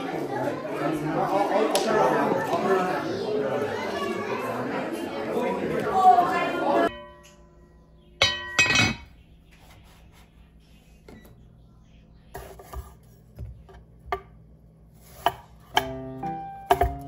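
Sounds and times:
pot lid clanking: 8.2 - 9.1
knife tapping cutting board: 16.7 - 17.0.

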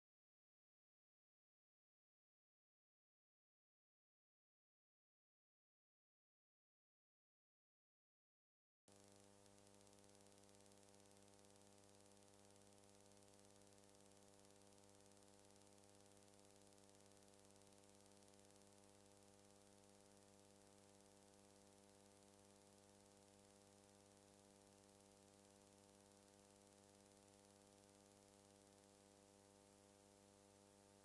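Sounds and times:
faint electrical hum with hiss: 8.9 - 31.0.

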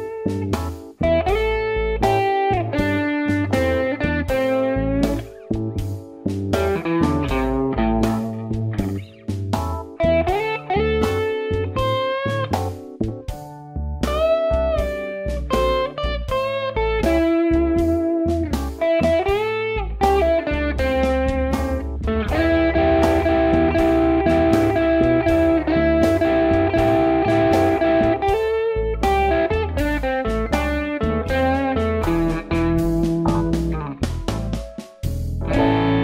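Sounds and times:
electric guitar blues solo: 0.0 - 5.5, 6.6 - 9.3, 9.9 - 12.8, 14.1 - 34.1, 35.4 - 36.0
blues backing bass and drums: 0.0 - 36.0.

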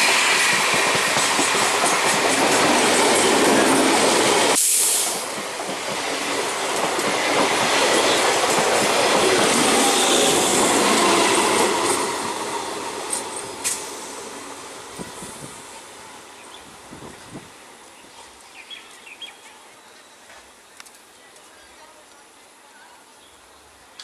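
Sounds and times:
train wheels clattering on rails: 0.0 - 14.0.

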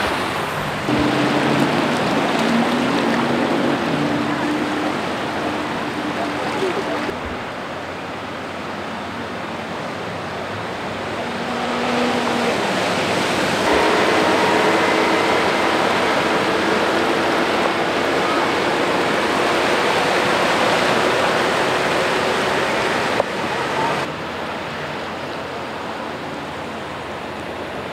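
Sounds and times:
bus splashing through water: 0.0 - 27.9
faint engine hum: 0.0 - 27.9
floodwater rushing: 0.0 - 27.9.

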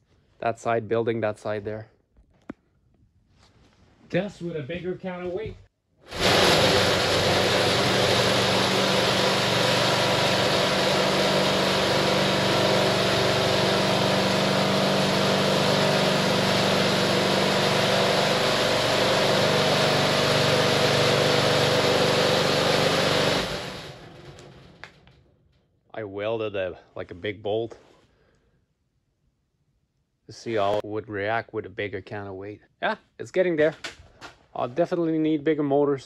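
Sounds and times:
vibrator motor hum: 6.1 - 25.2.

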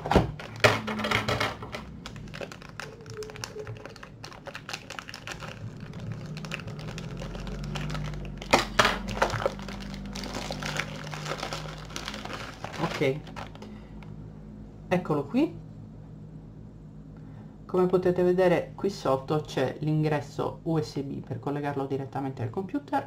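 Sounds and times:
plastic wrapping crinkling: 0.4 - 13.7.

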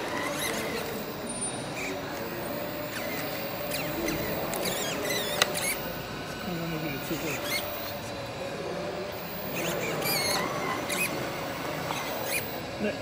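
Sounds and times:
high wavering squeaks: 0.0 - 2.1, 2.8 - 5.9, 9.3 - 11.3, 11.9 - 12.5
toy tractor electric whirring: 0.0 - 13.0.

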